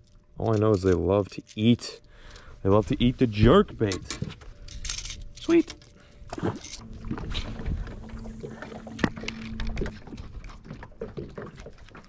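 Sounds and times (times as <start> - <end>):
steady hum: 2.0 - 12.0
water lapping against hull: 6.2 - 12.0.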